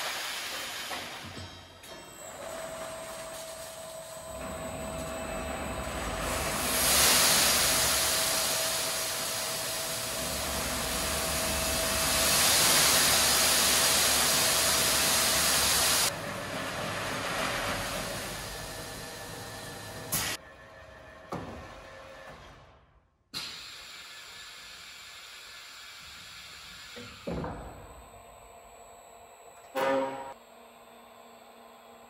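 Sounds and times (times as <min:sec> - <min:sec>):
bag emptying machine hissing: 0:00.0 - 0:01.4, 0:02.3 - 0:20.4.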